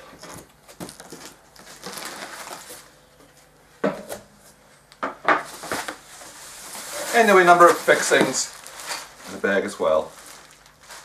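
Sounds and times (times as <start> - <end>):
paper and cardboard rustling: 0.0 - 3.0, 5.5 - 11.0.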